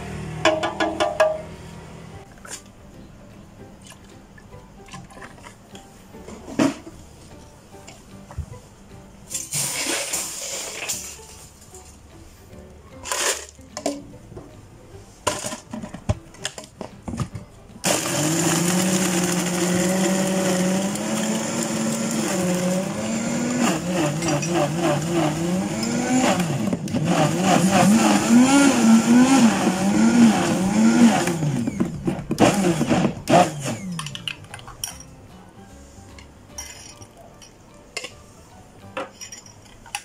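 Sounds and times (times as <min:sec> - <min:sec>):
electric blender running: 0:17.8 - 0:33.8.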